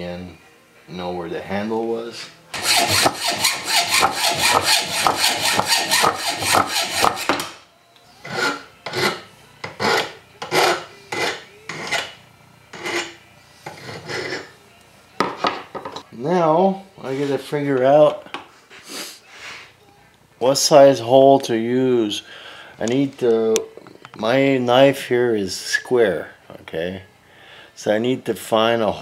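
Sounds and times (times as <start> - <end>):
hand file rasping on steel: 2.6 - 7.3, 8.2 - 14.5.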